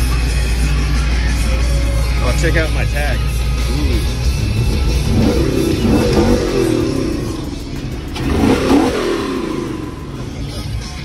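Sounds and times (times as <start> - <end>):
background music: 0.0 - 11.0
car engine revving: 3.2 - 11.0.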